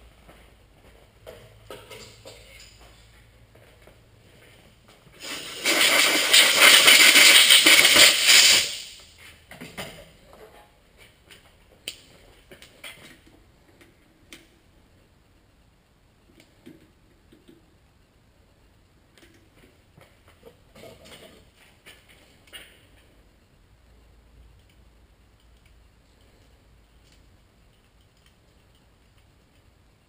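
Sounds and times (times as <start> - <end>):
loud hissing rush: 5.2 - 9.0.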